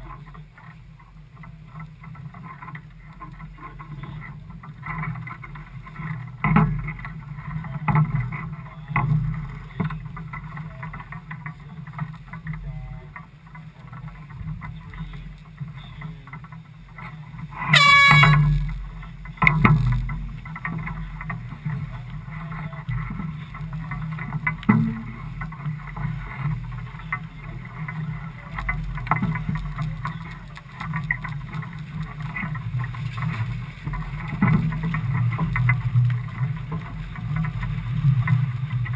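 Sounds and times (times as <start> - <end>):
boat noise: 0.0 - 38.9
air horn blast: 17.6 - 18.8.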